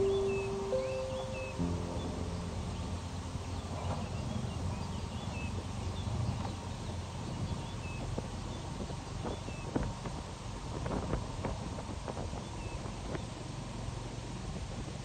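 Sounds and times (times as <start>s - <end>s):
low rumble: 0.0s - 7.8s
waterbirds chirping: 0.0s - 14.4s.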